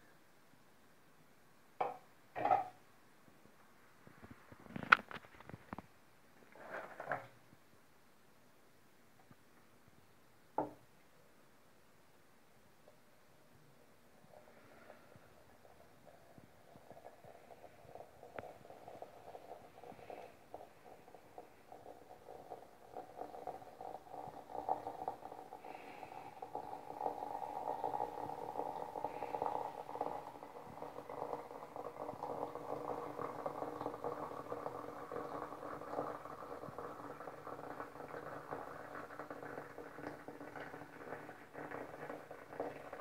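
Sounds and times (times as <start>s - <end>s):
water pouring into teapot: 14.3s - 43.0s.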